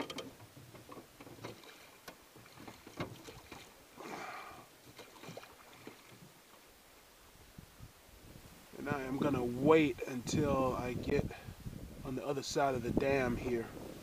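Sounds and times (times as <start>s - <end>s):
oar splashing in water: 0.0s - 6.7s.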